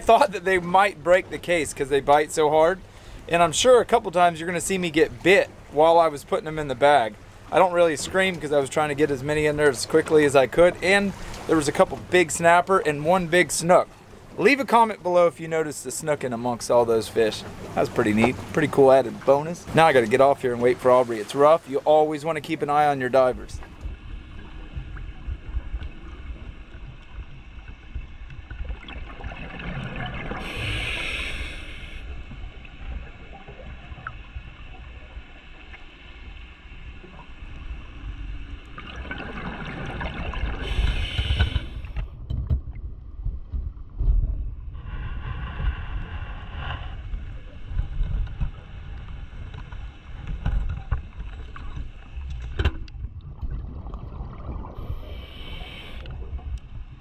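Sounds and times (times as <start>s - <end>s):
low rumble of water: 0.0s - 57.0s
exhaled bubbles underwater: 23.6s - 35.8s, 36.9s - 42.0s, 50.2s - 57.0s.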